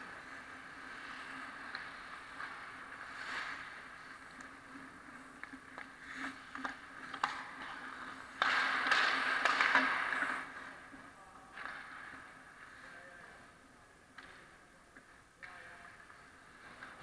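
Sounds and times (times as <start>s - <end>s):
ice skate blades scraping: 0.0s - 11.0s
hockey sticks and puck clacking: 0.0s - 17.0s.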